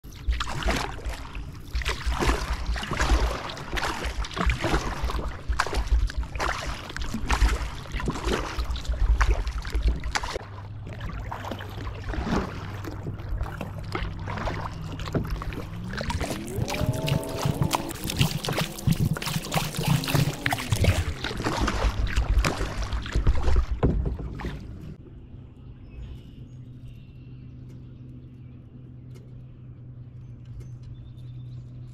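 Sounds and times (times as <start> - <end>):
low steady hum: 0.0 - 31.9
kayak paddle splashing in water: 0.1 - 25.0
low rumble: 0.2 - 31.9.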